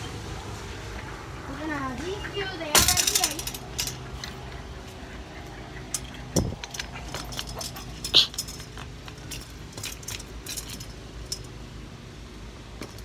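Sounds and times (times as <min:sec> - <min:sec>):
metal chain rattling: 0:02.7 - 0:04.6, 0:05.8 - 0:11.6.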